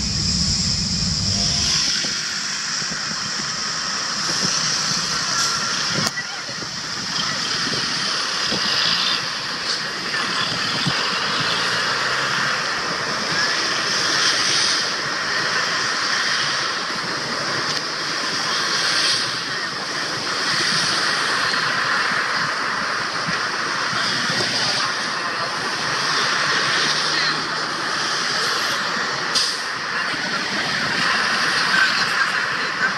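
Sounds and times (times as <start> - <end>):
jet engines roaring: 0.0 - 32.9.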